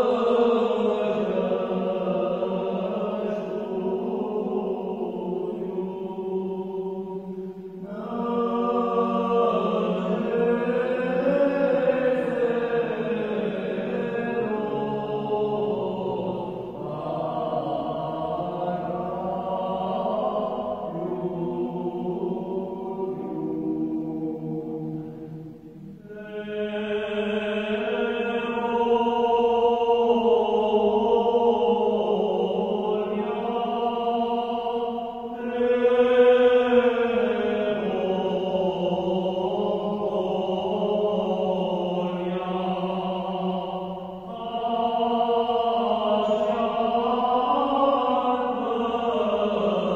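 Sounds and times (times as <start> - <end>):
liturgical chant: 0.0 - 49.9.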